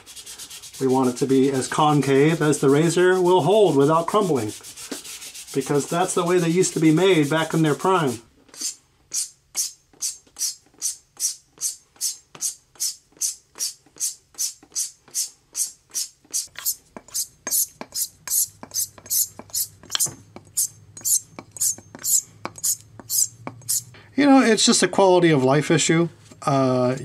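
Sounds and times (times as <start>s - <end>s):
razor swishing on a strop: 8.0s - 23.9s.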